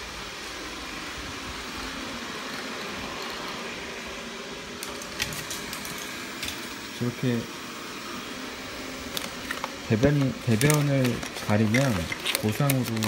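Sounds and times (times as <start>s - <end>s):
fan-like whooshing hum: 0.0s - 13.0s.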